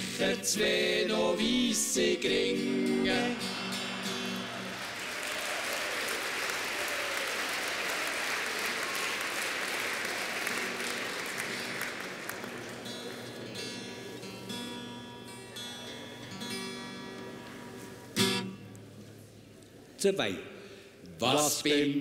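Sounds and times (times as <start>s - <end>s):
acoustic guitar playing: 0.0s - 5.1s, 10.6s - 19.6s
audience applause: 3.2s - 14.2s.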